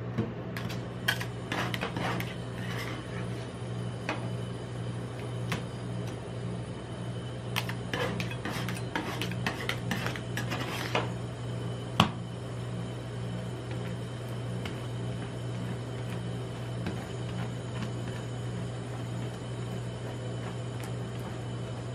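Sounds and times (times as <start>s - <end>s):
steady low hum: 0.0s - 21.9s
metal spatulas scraping steel plate: 0.6s - 3.4s, 7.6s - 11.0s.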